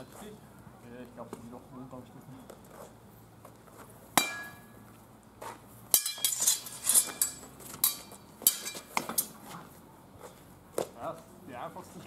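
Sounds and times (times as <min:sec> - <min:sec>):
steel swords clashing: 0:04.2 - 0:04.8, 0:05.9 - 0:09.4.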